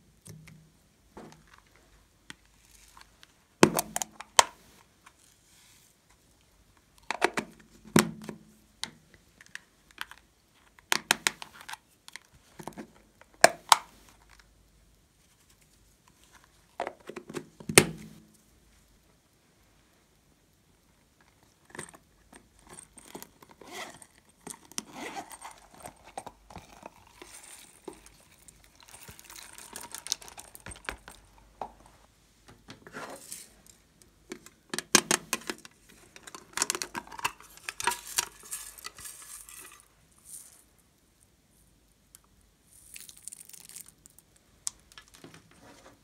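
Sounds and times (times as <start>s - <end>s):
plastic sequins clinking: 22.4s - 31.4s, 36.4s - 40.6s
small clicks taps and rustles: 43.0s - 45.6s.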